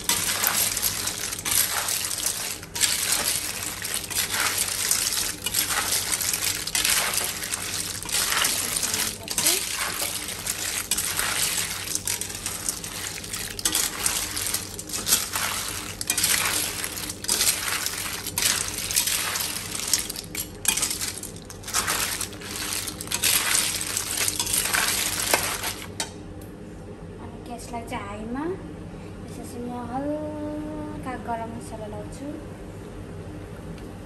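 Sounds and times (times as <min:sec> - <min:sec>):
snail shells clattering in metal pan: 0:00.0 - 0:26.0.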